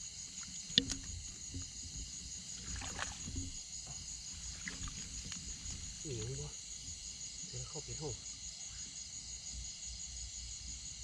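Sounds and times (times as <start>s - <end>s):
crickets trilling: 0.0s - 11.0s
faint splashy sounds: 0.4s - 6.6s.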